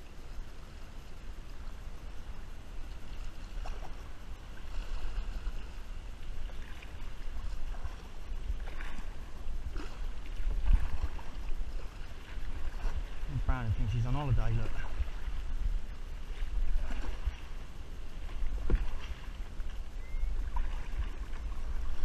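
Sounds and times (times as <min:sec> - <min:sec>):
kayak paddle splashing: 0:00.0 - 0:22.0
low rumble: 0:12.7 - 0:20.5.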